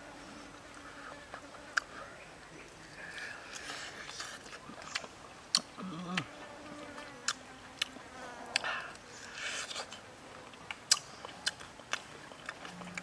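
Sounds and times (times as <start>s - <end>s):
mouth eating with wet smacks: 3.5s - 6.3s, 8.5s - 13.0s.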